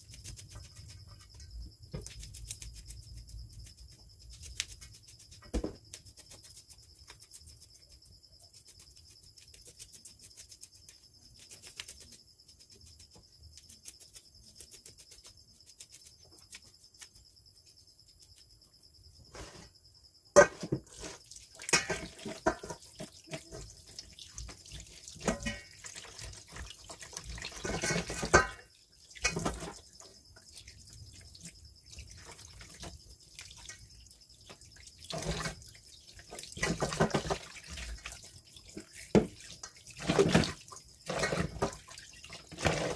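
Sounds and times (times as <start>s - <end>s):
tap water splashing into bowl: 21.5s - 26.8s, 27.5s - 29.8s, 36.2s - 42.9s.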